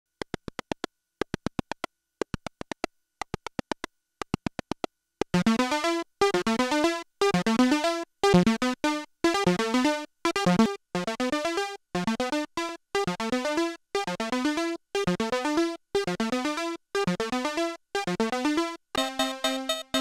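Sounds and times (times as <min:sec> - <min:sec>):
bright synth note sequence: 0:19.0 - 0:20.0.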